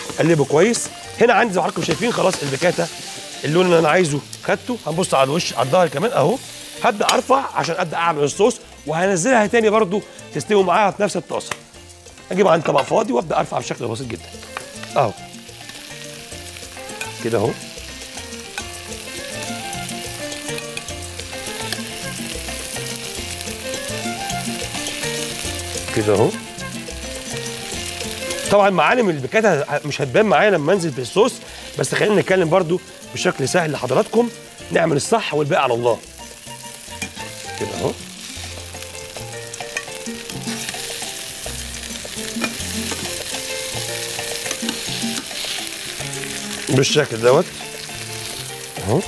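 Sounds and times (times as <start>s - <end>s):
background music with bass line: 0.0s - 49.0s
fat sizzling in a frying pan: 0.0s - 49.0s
metal tongs clicking on pan: 37.0s - 37.2s, 44.4s - 45.7s.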